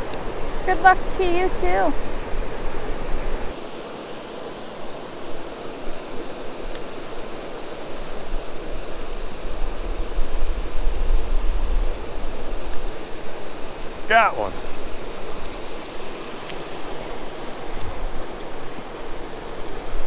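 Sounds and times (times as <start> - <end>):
creek rushing over weir: 0.0 - 20.0
wind buffeting microphone: 4.8 - 20.0.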